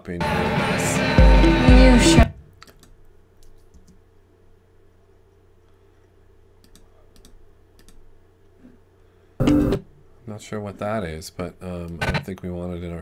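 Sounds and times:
computer mouse clicks: 0:06.6 - 0:08.0.

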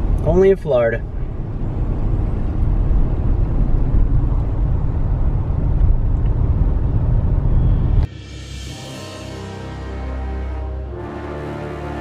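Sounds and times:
road noise inside car: 0:00.0 - 0:08.1.

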